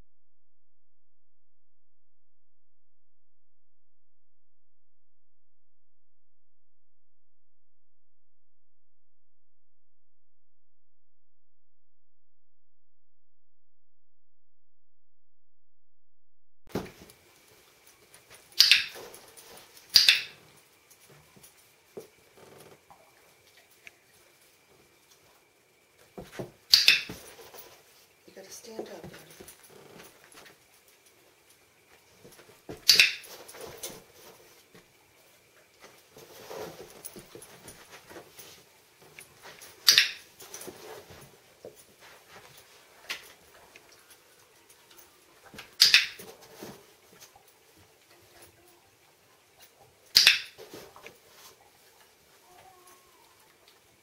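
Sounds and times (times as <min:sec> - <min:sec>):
sharp click: 0:20.0 - 0:20.3.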